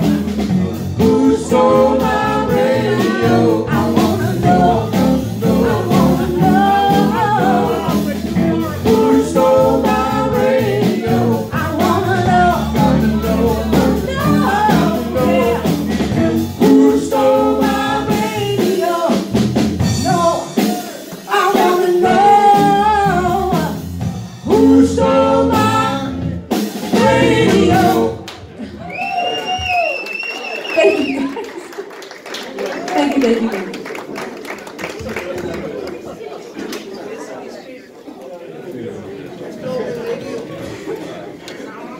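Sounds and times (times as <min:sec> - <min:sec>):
blues band playing: 0:00.0 - 0:28.5
woman singing: 0:01.0 - 0:08.0, 0:08.8 - 0:19.3, 0:21.3 - 0:23.8, 0:26.9 - 0:28.1.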